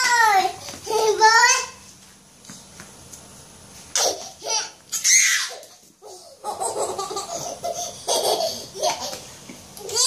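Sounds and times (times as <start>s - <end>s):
toddler laughing and squealing: 3.9s - 10.0s.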